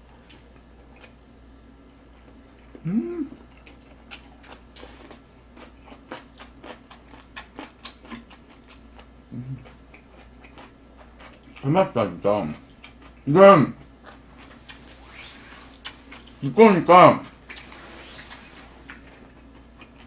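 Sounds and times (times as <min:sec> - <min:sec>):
close chewing with wet mouth clicks: 0:01.9 - 0:11.6
voice humming: 0:02.8 - 0:03.4, 0:09.3 - 0:09.6.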